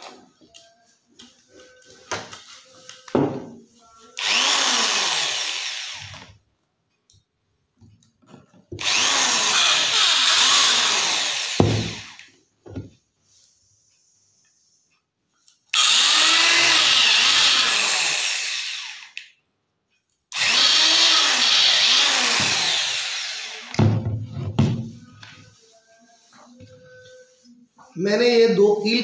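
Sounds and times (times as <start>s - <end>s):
electric drill boring: 4.2s - 6.3s, 8.8s - 12.3s, 15.7s - 19.2s, 20.3s - 23.9s.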